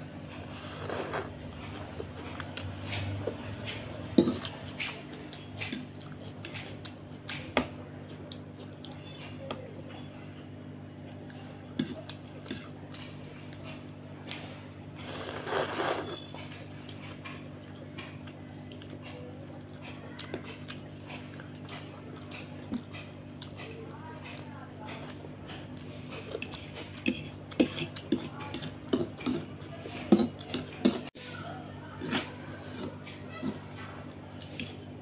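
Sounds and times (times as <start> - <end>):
slurping noodles: 0.4 - 1.4, 15.0 - 16.3, 32.0 - 33.7
fork scraping on a plate: 15.0 - 17.4, 26.0 - 31.1, 32.0 - 34.9.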